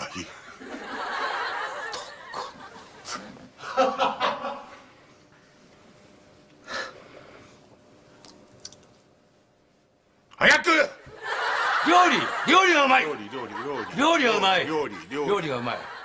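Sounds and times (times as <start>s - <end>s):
laughter: 0.0s - 4.9s, 11.1s - 16.0s.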